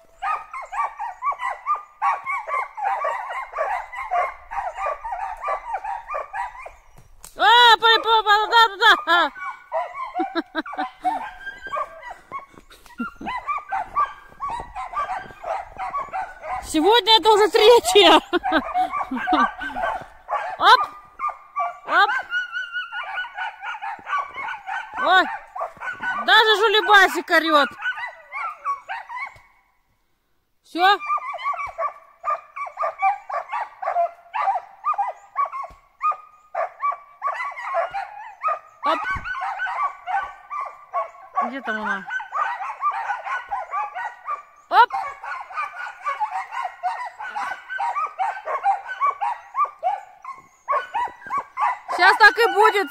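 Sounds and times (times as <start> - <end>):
dogs barking: 0.0 - 7.1, 7.8 - 29.6, 30.8 - 52.9
dogs yelping: 0.0 - 29.6, 30.8 - 52.9.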